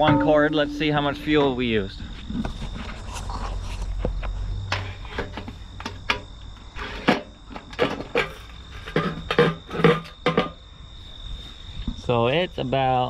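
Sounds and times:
cricket trill: 0.0 - 13.0
metal fuel cap clicking and scraping: 4.7 - 6.2.

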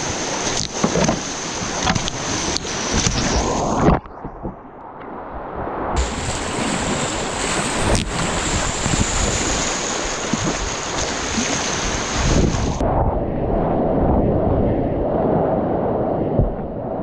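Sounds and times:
wind on microphone: 0.0 - 17.0
sharp splash: 5.9 - 12.8
rushing whitewater: 6.0 - 12.8.

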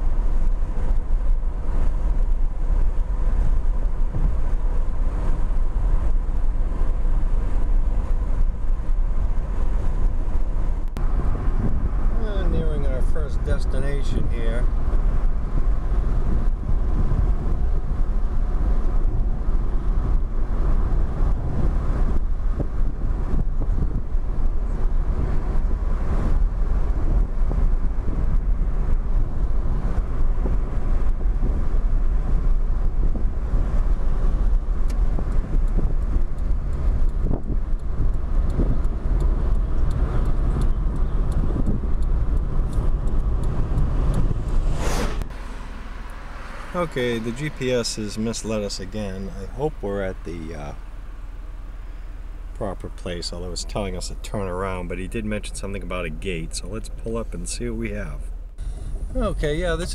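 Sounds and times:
car cabin road rumble: 0.0 - 59.9.

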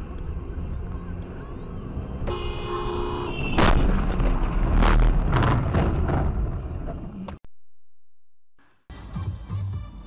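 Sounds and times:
vehicle crash: 3.6 - 7.1.

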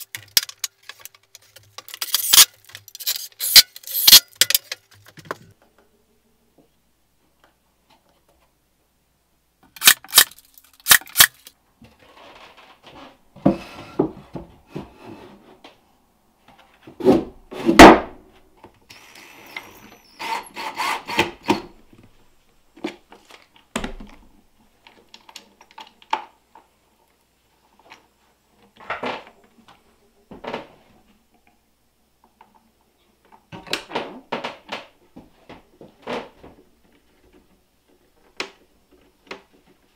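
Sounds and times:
sharp clicks: 9.8 - 11.5
cordless drill driving screws: 18.9 - 21.6.

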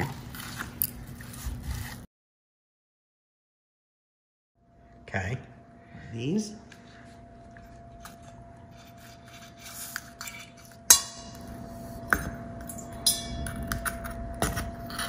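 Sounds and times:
spoon and shells clinking on metal bowls: 12.6 - 14.1.

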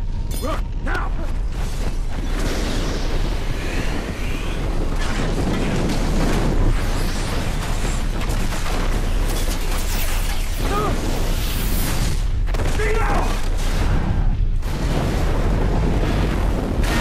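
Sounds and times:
rush of wind and debris: 0.0 - 17.0
deep steady rumble: 13.6 - 17.0.

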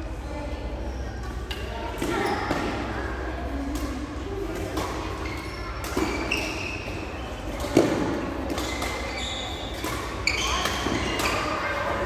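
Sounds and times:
shoes squeaking on court floor: 5.0 - 11.7
racket striking shuttlecock: 7.5 - 11.5.

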